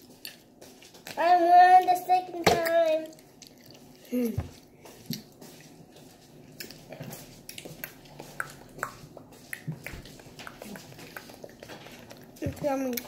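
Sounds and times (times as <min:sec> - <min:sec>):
chewing gummy with wet clicks: 0:02.6 - 0:04.1, 0:06.5 - 0:13.0.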